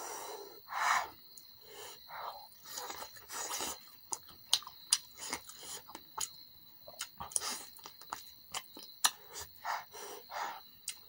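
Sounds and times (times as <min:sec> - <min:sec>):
short breaths: 0:00.0 - 0:02.4
wet chewing clicks and smacks: 0:02.5 - 0:09.9, 0:10.5 - 0:11.0.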